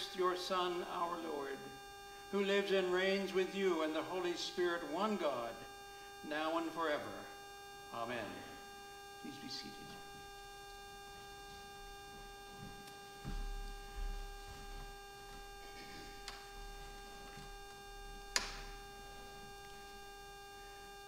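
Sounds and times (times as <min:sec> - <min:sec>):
electrical hum: 0:00.0 - 0:21.0
soft low thumps: 0:10.8 - 0:19.1.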